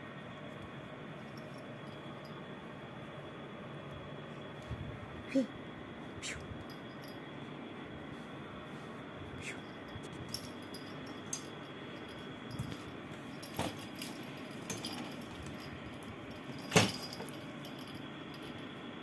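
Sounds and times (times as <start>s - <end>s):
small bell jingling: 6.6s - 7.4s, 9.5s - 18.8s.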